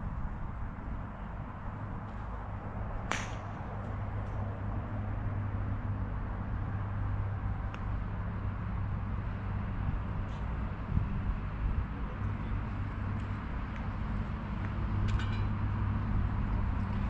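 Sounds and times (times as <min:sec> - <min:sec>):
golf club striking ball: 0:03.1 - 0:03.6.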